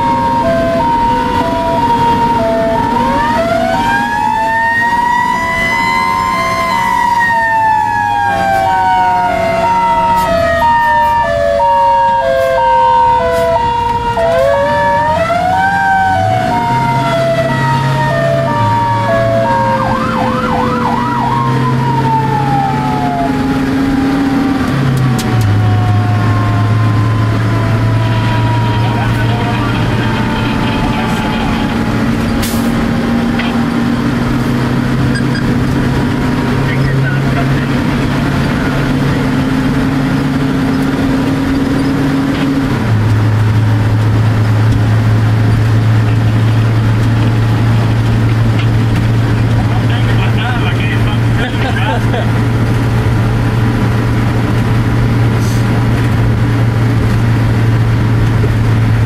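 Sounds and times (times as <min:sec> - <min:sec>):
wind-up siren: 0:00.0 - 0:32.0, 0:35.1 - 0:35.6
siren yelp: 0:00.0 - 0:34.2, 0:34.8 - 0:41.1
two-tone electronic siren: 0:00.0 - 0:51.7.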